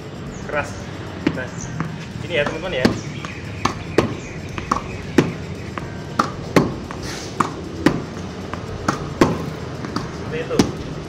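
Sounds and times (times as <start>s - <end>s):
ball bouncing on hard court: 1.2s - 11.0s
racket hitting tennis ball: 1.2s - 11.0s.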